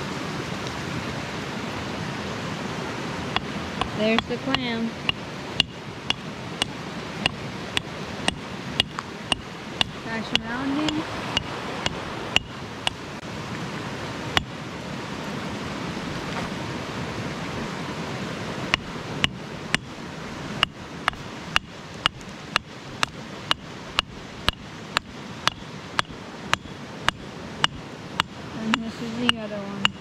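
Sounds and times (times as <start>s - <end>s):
creek rushing: 0.0s - 30.0s
rock hammer striking stone: 3.4s - 13.0s, 18.8s - 19.9s, 20.6s - 30.0s.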